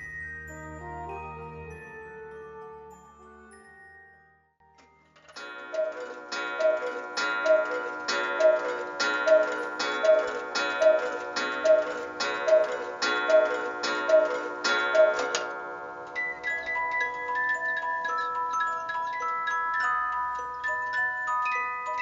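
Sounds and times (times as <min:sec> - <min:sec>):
cuckoo clock call: 0:05.2 - 0:22.0
clock gong ringing: 0:05.4 - 0:17.2.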